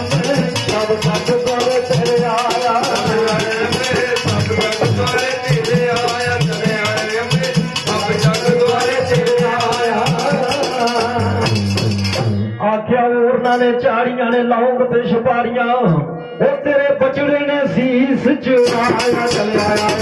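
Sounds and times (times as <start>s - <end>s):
rattling percussion beat: 0.0s - 12.5s, 18.6s - 20.0s
devotional song instrumental music: 0.0s - 20.0s.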